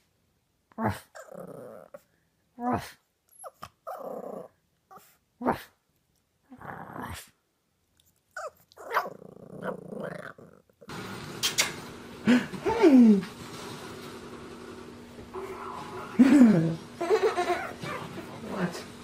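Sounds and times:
puppy growly howl: 0.8s - 2.0s, 3.8s - 5.1s, 8.4s - 10.7s
puppy yipping: 8.4s - 9.2s.

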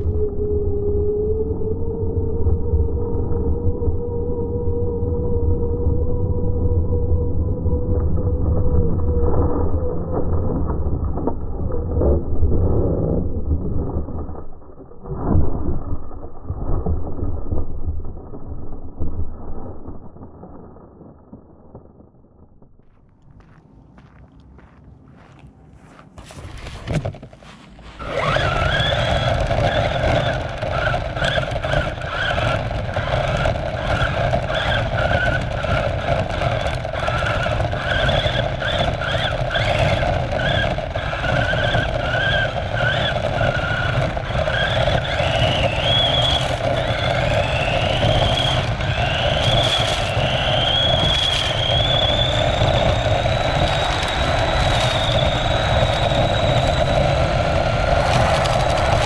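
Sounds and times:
wheels rumbling on ground: 0.0s - 59.0s
rc car motor whining: 28.0s - 59.0s.

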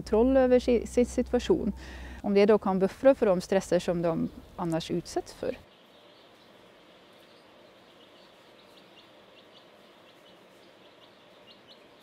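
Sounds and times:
steady background hiss: 0.1s - 12.0s
chicks peeping: 5.5s - 12.0s.

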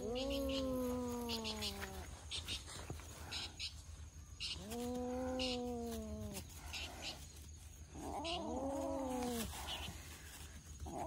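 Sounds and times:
cats meowing: 0.0s - 2.4s, 4.4s - 6.4s.

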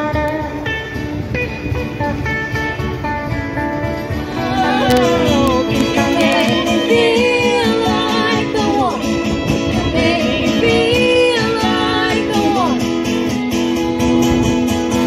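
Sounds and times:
guitar accompaniment: 0.0s - 15.0s
person singing: 4.2s - 12.8s.

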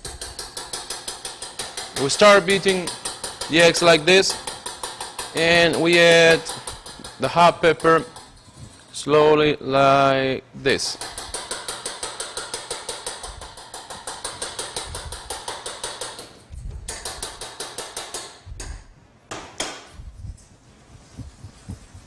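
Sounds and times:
fork beating eggs clicking: 0.0s - 8.4s, 10.9s - 18.3s.

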